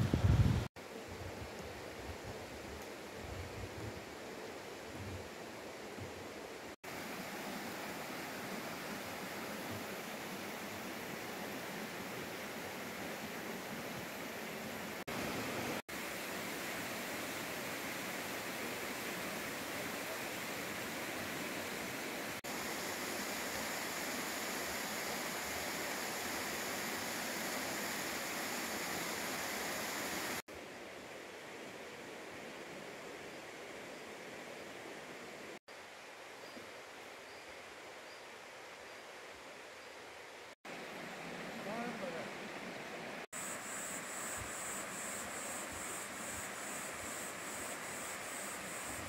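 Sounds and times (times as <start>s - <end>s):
water rushing in a rocky stream: 6.8s - 30.4s.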